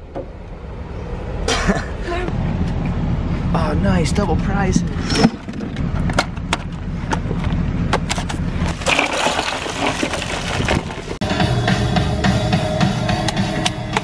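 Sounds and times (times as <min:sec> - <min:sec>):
ice cracking and crunching: 0:08.6 - 0:11.2
ice cubes rattling into cooler: 0:08.7 - 0:11.2
music with drums: 0:11.2 - 0:14.0.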